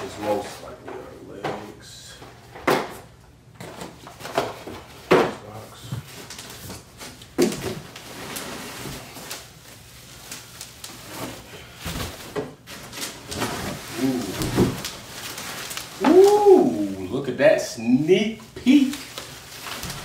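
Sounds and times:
plastic wrap rustling: 3.6s - 20.0s.

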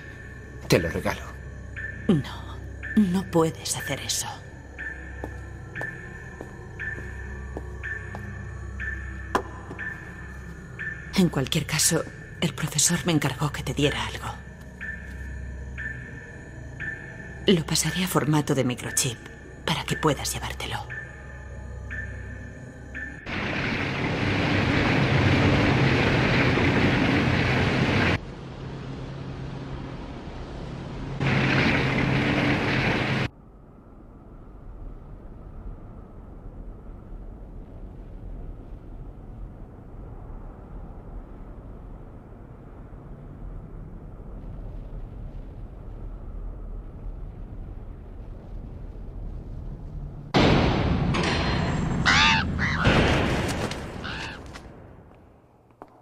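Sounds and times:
low rumbling ambience: 0.0s - 56.0s
armoured vehicle engine drone: 20.9s - 53.0s.

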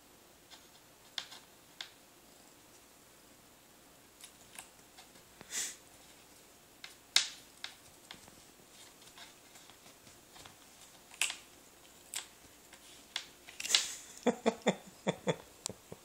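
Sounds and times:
kitten scratching cord: 0.5s - 2.6s, 4.2s - 14.1s.

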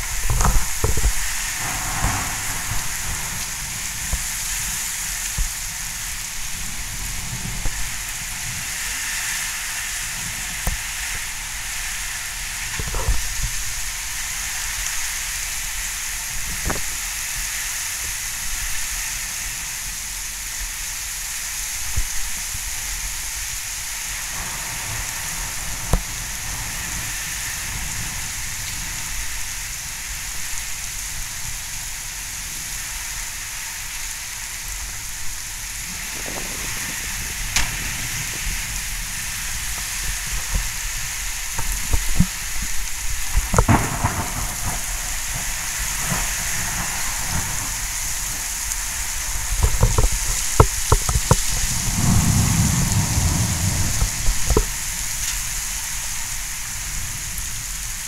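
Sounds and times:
low thunder rumble: 0.0s - 8.8s, 34.8s - 57.7s
heavy rain falling: 0.0s - 58.0s.

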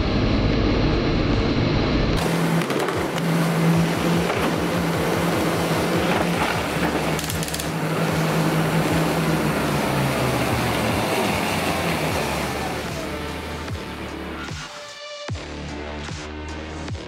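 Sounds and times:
toy truck electric motors: 7.2s - 7.8s.

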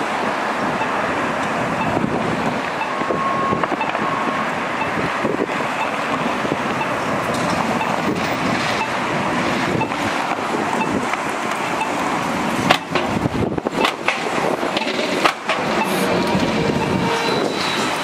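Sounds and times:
street traffic: 0.0s - 18.0s
trolleybus passing: 0.0s - 18.0s
sharp clicks and knocks: 12.7s - 16.6s.

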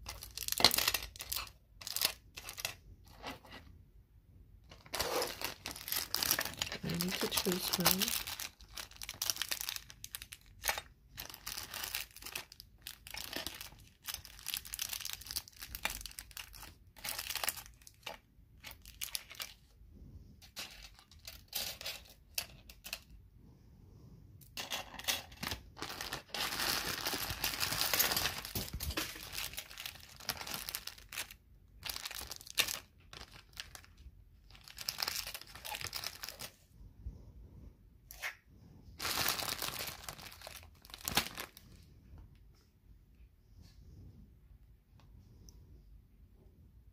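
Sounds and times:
plastic bags crinkling: 0.0s - 3.1s, 4.7s - 19.7s, 25.0s - 36.6s, 39.0s - 41.8s.

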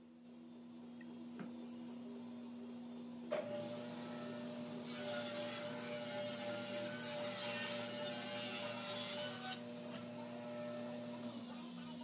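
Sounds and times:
table saw cutting a board: 3.4s - 11.7s.

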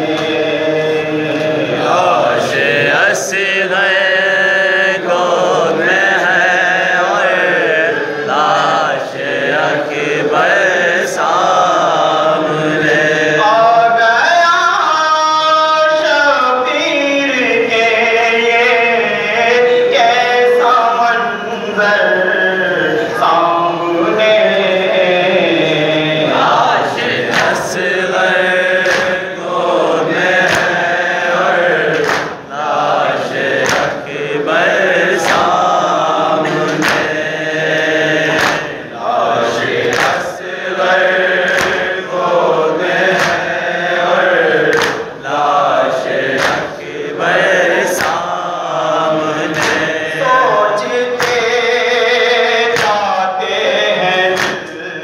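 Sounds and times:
men chanting call and chorus: 0.0s - 55.0s.

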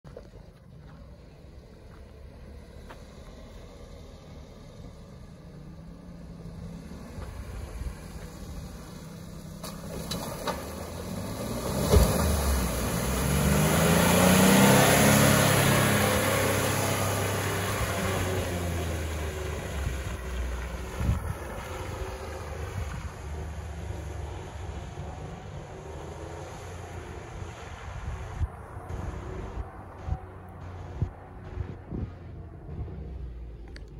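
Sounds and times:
car engine revving: 2.4s - 33.9s
water and mud splashing: 6.9s - 28.8s.

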